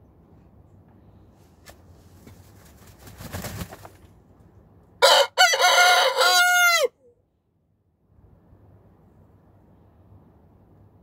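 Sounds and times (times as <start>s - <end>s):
rooster crowing: 5.0s - 7.1s.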